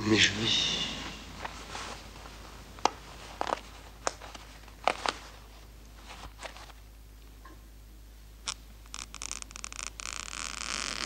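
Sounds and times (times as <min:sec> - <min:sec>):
clothing rustling: 0:01.0 - 0:06.8.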